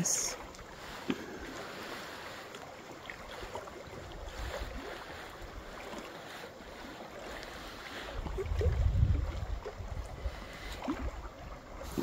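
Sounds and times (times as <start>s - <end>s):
waves lapping at shore: 0.0s - 12.0s
wind rumble on microphone: 8.0s - 12.0s.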